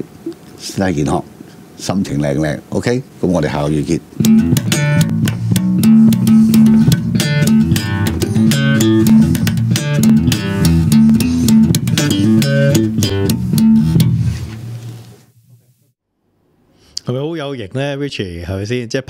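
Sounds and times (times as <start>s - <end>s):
electric bass plucked notes: 4.2s - 14.7s.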